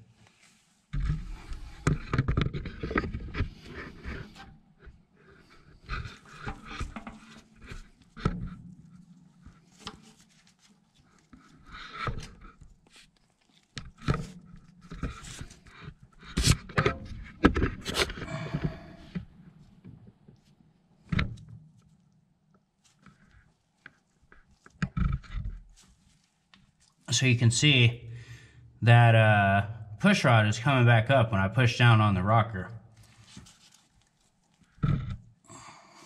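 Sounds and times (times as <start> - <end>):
breathing close to microphone: 18.1 - 19.3, 28.1 - 28.7, 35.5 - 36.0.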